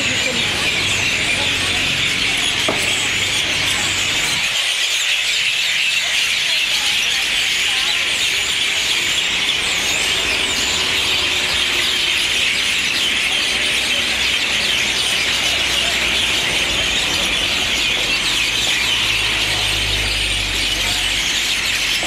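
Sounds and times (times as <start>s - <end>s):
flock of birds chattering and chirping: 0.0s - 22.0s.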